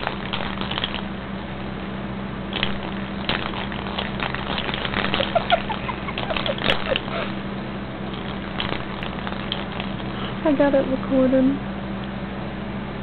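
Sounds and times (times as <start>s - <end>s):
steady low hum: 0.0s - 13.0s
kitten rustling and tapping toy: 2.6s - 7.2s.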